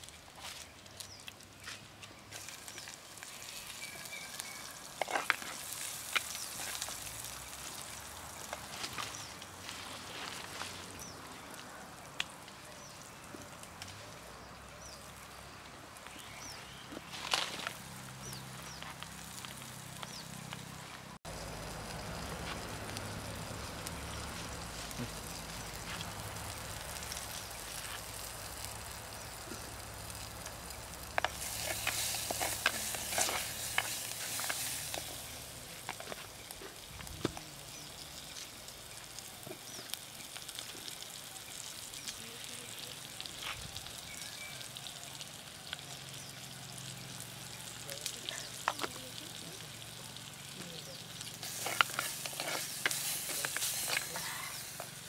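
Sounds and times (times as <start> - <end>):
onions sizzling in a pot: 0.0 - 55.0
wooden spoon scraping a pot: 31.2 - 35.2, 51.4 - 54.9.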